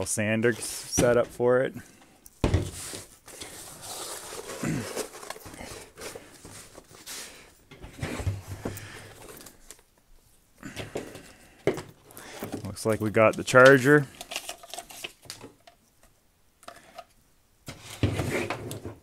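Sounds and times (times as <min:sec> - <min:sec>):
rustling and scraping of packaging: 0:02.4 - 0:09.9, 0:11.0 - 0:15.8, 0:17.7 - 0:19.0.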